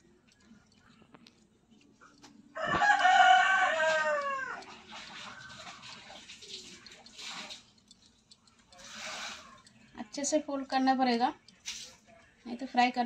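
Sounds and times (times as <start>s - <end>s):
rooster crowing: 2.6s - 4.7s.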